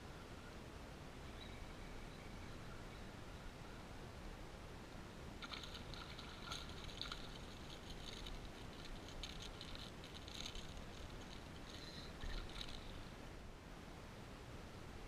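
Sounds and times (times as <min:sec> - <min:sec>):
fish splashing in water: 0:05.4 - 0:13.0.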